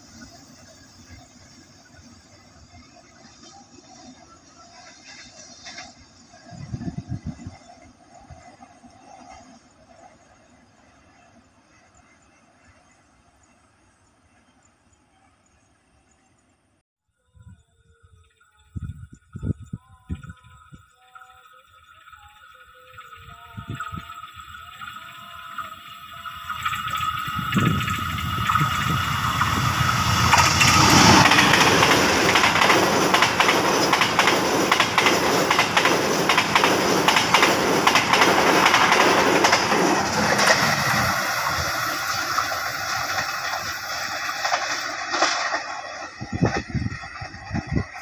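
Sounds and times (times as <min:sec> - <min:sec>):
train rushing noise: 0:00.0 - 0:14.1, 0:22.9 - 0:48.0
locomotive engine: 0:24.3 - 0:48.0
train wheels clattering over rail joints: 0:28.5 - 0:48.0.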